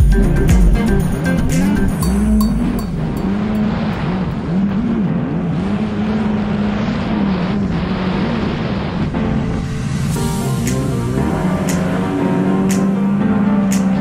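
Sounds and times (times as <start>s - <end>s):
watercraft engine running at speed: 2.0s - 9.1s.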